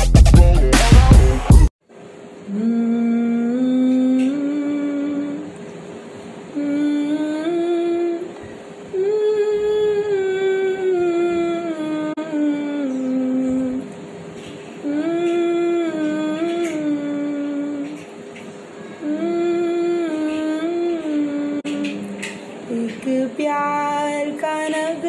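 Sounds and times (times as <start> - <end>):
woman humming a slow melody: 2.5 - 5.6, 6.5 - 14.0, 14.8 - 18.1, 19.0 - 25.0.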